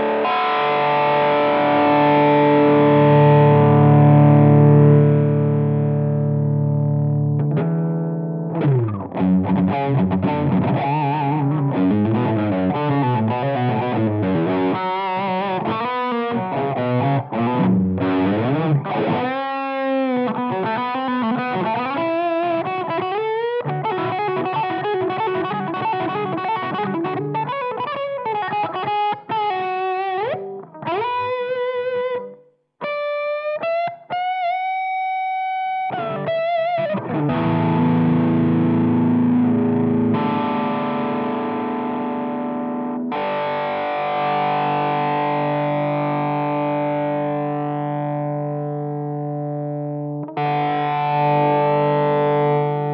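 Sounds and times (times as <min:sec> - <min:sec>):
distorted electric guitar: 0:00.0 - 0:52.9.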